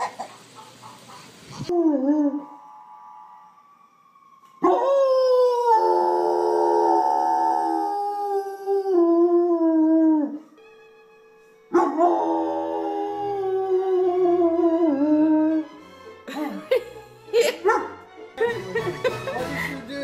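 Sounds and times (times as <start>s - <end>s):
dog howling: 1.7s - 3.6s, 4.6s - 10.4s, 11.7s - 15.7s.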